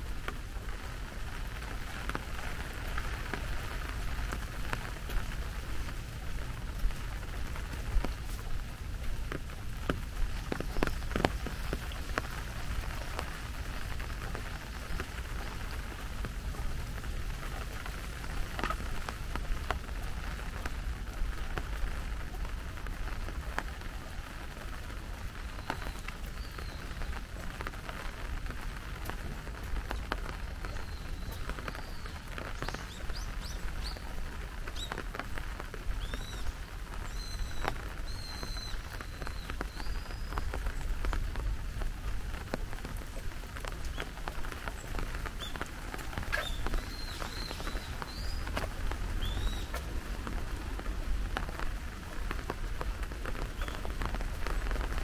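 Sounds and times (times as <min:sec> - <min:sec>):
heavier raindrops tapping: 0:00.0 - 0:55.0
steady rain: 0:00.0 - 0:55.0.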